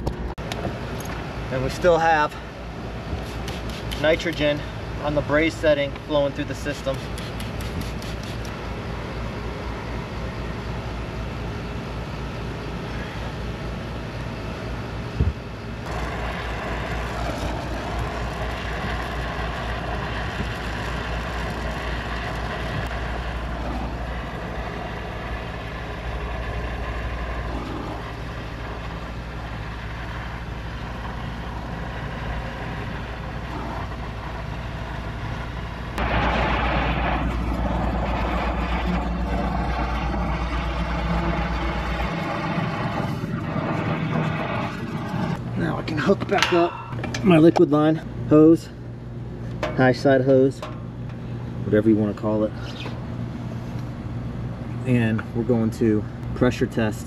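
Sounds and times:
torch flame burning: 2.8s - 8.6s, 15.8s - 46.6s
sharp snap: 3.2s - 4.5s.

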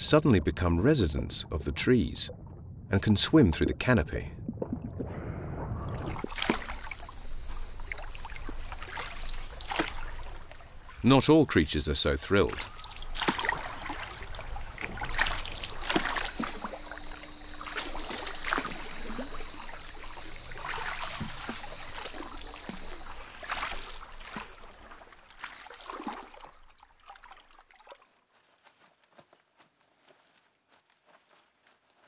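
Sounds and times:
water splashing and sloshing: 0.0s - 28.9s
high-pitched buzz: 6.2s - 10.9s, 15.7s - 23.2s.

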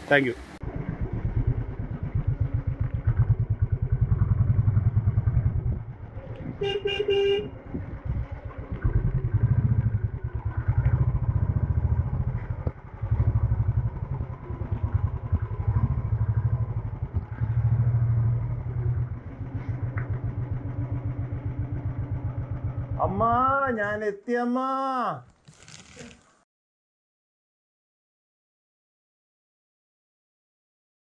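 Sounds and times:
motorcycle engine thumping: 1.2s - 23.1s
vehicle horn: 6.6s - 7.8s.

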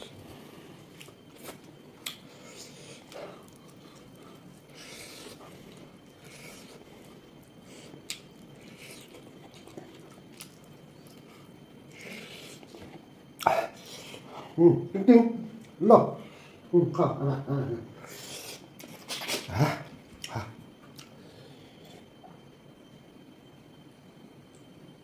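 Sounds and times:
person chewing and smacking: 0.8s - 14.2s.

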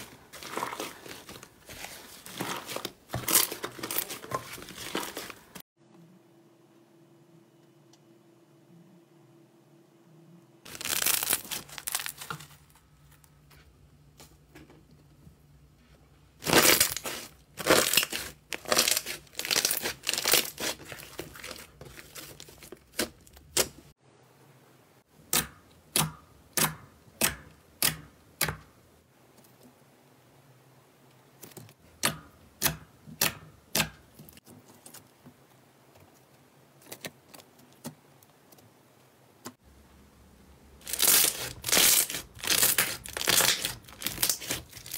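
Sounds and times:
slime crackling through wire mesh: 10.7s - 12.7s, 16.4s - 23.7s, 40.8s - 44.9s.

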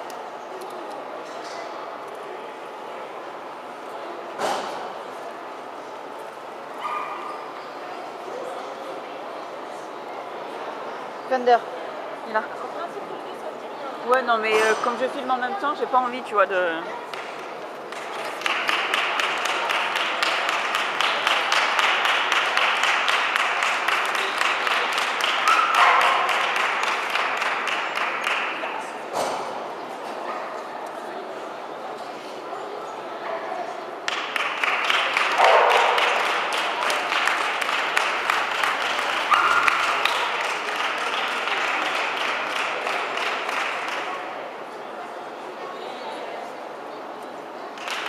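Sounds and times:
spectators clapping in rhythm: 17.1s - 28.8s, 34.0s - 44.4s, 47.7s - 48.0s
audience applauding: 17.9s - 28.8s, 34.1s - 44.3s, 47.8s - 48.0s.

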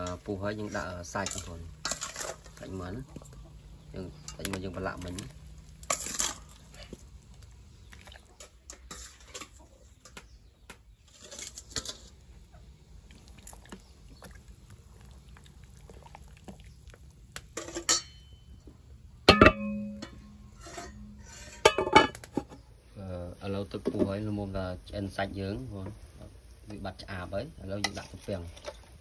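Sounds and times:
dishes and utensils clinking: 17.5s - 18.6s, 19.3s - 22.6s.

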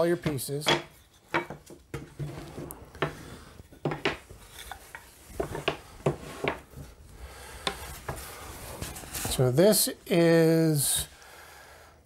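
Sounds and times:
wooden boards knocking on a table: 0.7s - 2.2s, 3.8s - 4.2s.

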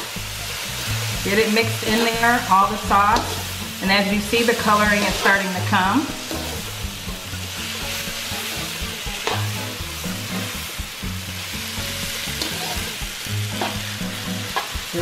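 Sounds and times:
food sizzling in a wok: 0.0s - 15.0s.

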